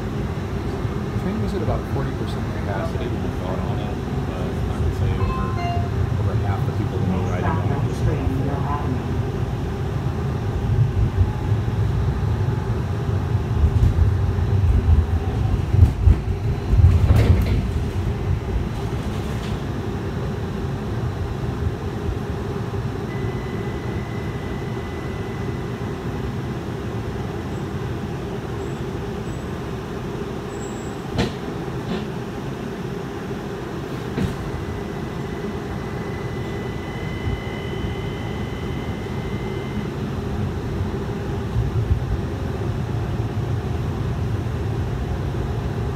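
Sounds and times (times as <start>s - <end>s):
streetcar wheels rumbling: 0.0s - 45.9s.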